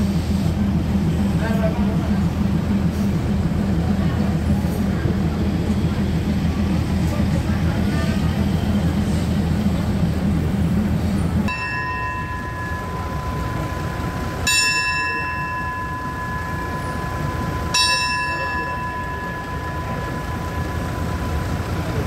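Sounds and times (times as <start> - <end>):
train engine rumble: 0.0 - 22.0
hand bell ringing: 11.5 - 21.3.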